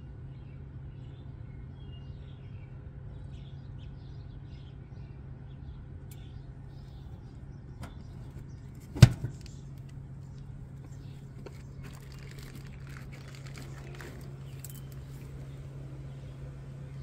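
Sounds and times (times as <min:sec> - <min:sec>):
steady low hum: 0:00.0 - 0:17.0
metal cabinet door banging shut: 0:08.9 - 0:09.4.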